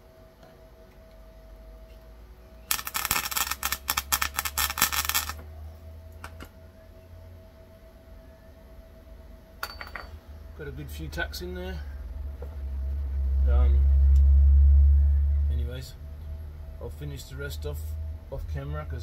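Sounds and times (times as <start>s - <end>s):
steady low hum: 0.0s - 19.0s
welder arc crackling: 2.7s - 5.4s.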